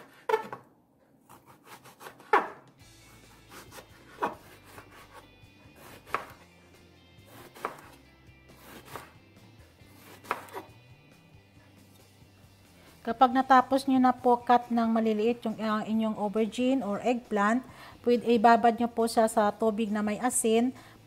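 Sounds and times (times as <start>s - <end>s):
knife chopping on wooden board: 1.3s - 5.2s, 5.8s - 6.4s, 7.2s - 9.2s, 9.9s - 10.7s.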